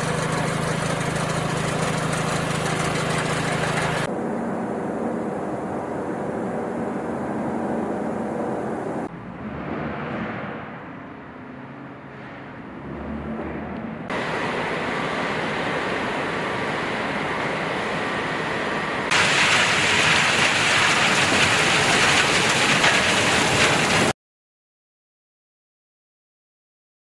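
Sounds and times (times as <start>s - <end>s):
stone crushing machinery running: 0.0s - 4.1s, 18.9s - 24.1s.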